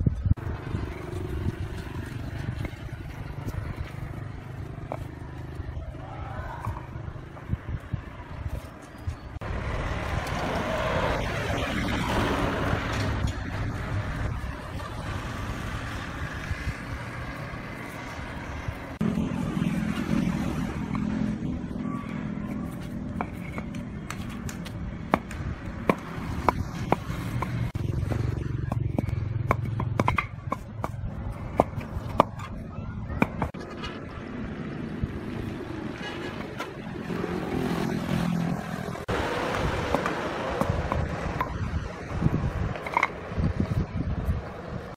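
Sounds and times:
concrete pavers clacking together: 0:22.5 - 0:33.6, 0:42.6 - 0:43.3.

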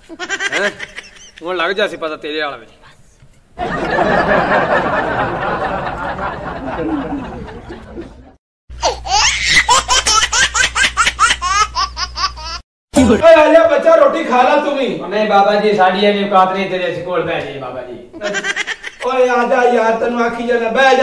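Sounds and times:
group laughter: 0:00.2 - 0:01.4, 0:03.6 - 0:08.4.

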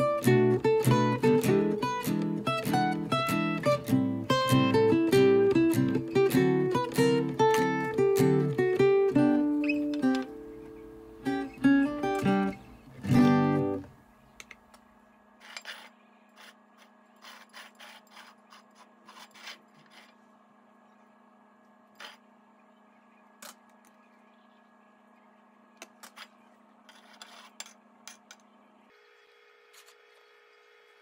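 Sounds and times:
acoustic guitar music: 0:00.0 - 0:13.9
knife spreading cream: 0:15.4 - 0:20.2.

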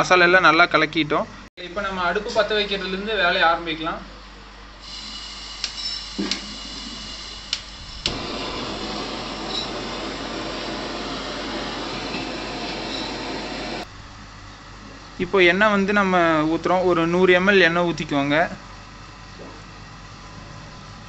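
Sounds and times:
burner flame rushing: 0:04.8 - 0:13.9
gas hissing: 0:04.8 - 0:13.9.

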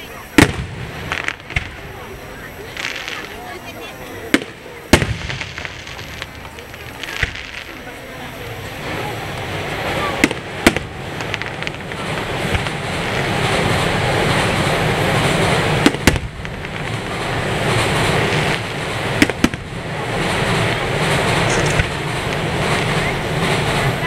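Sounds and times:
steady rushing noise: 0:00.0 - 0:24.0
firework shells bursting: 0:00.2 - 0:24.0
sharp bangs: 0:00.3 - 0:03.4, 0:04.2 - 0:24.0.

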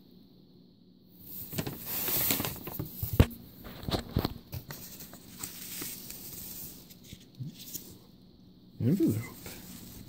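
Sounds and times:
paper rustling: 0:01.3 - 0:08.1, 0:09.0 - 0:10.0.

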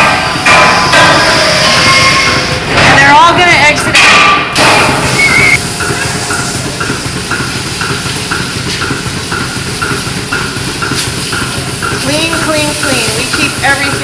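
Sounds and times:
vacuum system hum: 0:00.0 - 0:14.0
pulsation clicking: 0:04.9 - 0:14.0.

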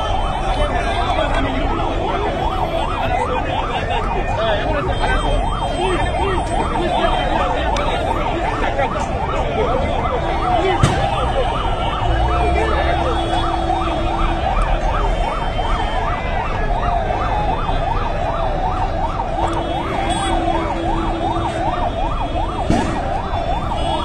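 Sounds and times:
siren yelping: 0:00.0 - 0:24.0
sharp bang: 0:22.7 - 0:23.2.

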